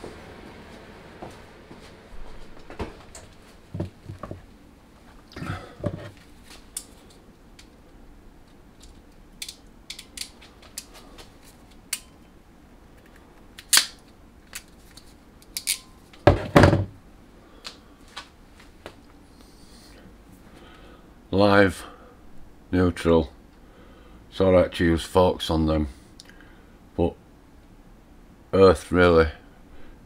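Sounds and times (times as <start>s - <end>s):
heavy thumps: 3.7s - 4.4s, 16.2s - 17.0s
crimping pliers clicking: 8.8s - 10.9s.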